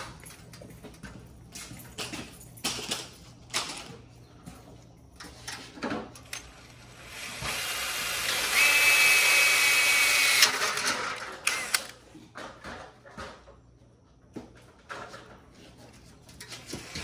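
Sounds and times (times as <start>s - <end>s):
drill boring through metal: 7.0s - 10.8s, 11.4s - 11.9s.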